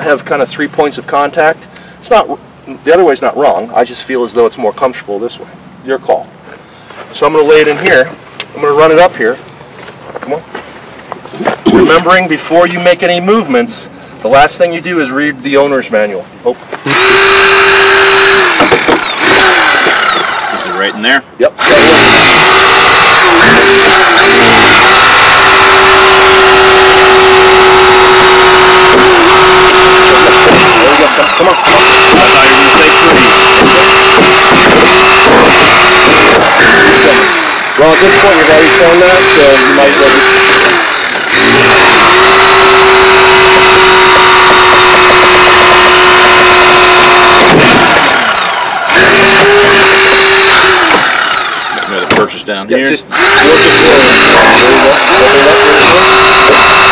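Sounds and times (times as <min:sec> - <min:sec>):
hydraulic spreader motor whine: 0:16.8 - 0:52.3, 0:53.0 - 0:56.9.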